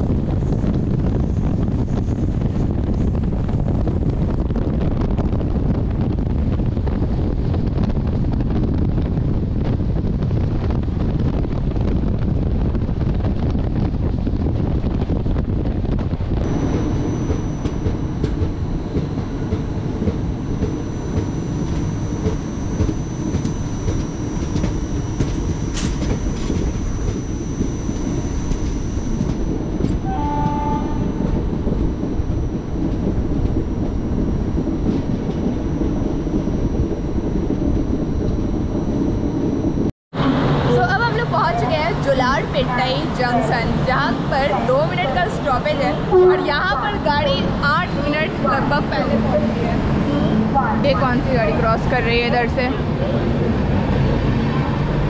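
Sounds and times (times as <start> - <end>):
train rumble heard from inside: 0.0 - 55.0
wind rushing past train door: 0.0 - 55.0
horn-like tone: 16.4 - 39.6, 42.5 - 53.2.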